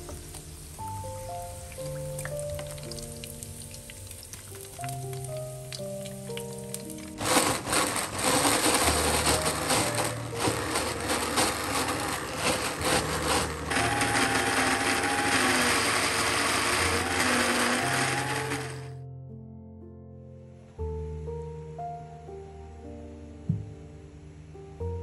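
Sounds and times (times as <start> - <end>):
frying oil sizzle: 0.0 - 8.1
electric blender grinding: 7.0 - 19.0.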